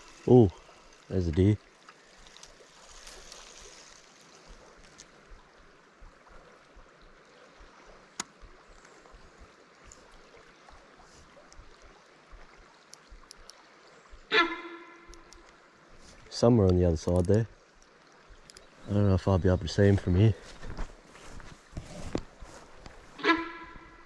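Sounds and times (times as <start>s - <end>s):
river flowing: 0.0s - 24.0s
light clicks: 12.8s - 13.6s, 16.6s - 18.7s.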